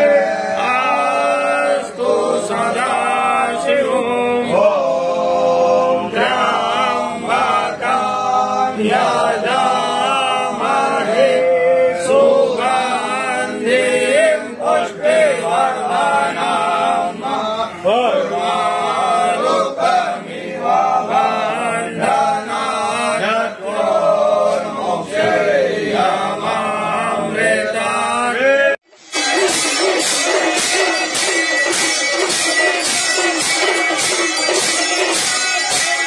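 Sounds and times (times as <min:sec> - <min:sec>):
music with percussion: 0:00.0 - 0:03.9, 0:28.9 - 0:36.0
men chanting in unison: 0:00.0 - 0:28.8.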